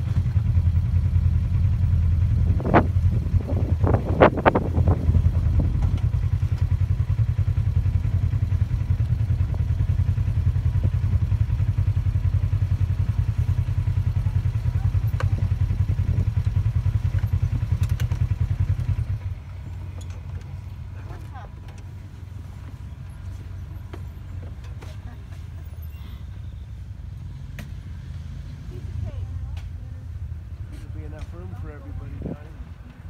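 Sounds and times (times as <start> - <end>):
utility vehicle engine idling: 0.0 - 33.0.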